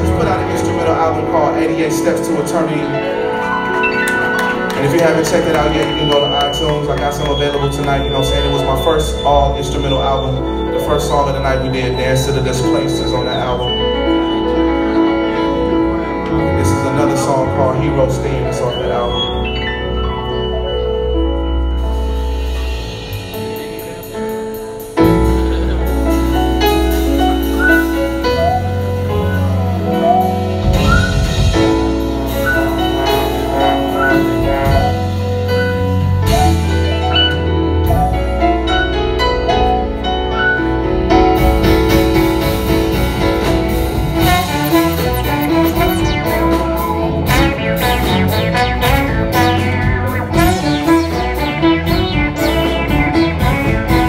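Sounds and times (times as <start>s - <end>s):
recorded song playing: 44.0s - 54.0s.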